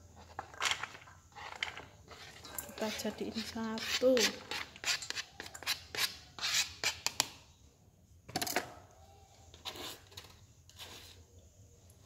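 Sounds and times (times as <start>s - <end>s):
spatula scraping cutting board: 1.3s - 7.0s.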